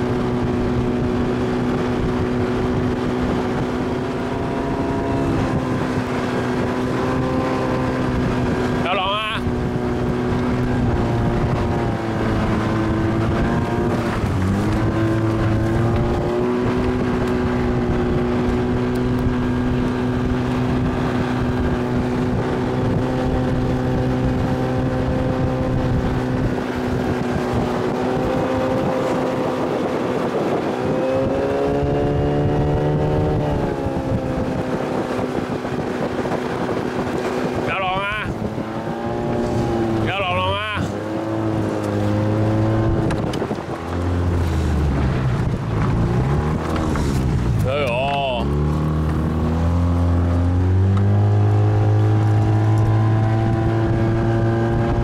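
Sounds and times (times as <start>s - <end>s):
motorboat engine running: 0.0s - 55.0s.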